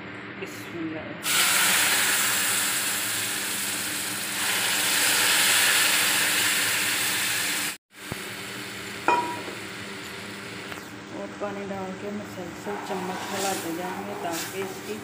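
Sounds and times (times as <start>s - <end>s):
liquid hissing in hot pot: 1.2s - 7.8s.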